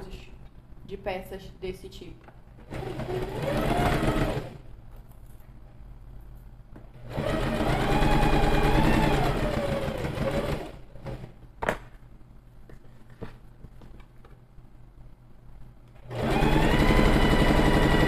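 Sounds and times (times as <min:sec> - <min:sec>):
sewing machine stitching: 0:02.6 - 0:04.6, 0:07.0 - 0:11.3, 0:16.0 - 0:18.0.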